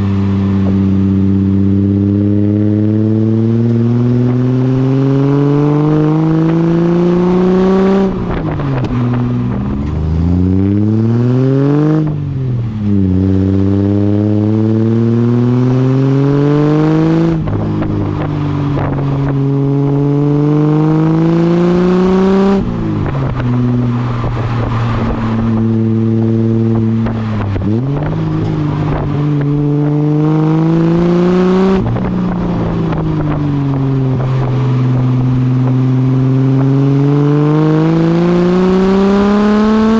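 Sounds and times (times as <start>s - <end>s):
car exhaust accelerating: 0.0s - 39.9s.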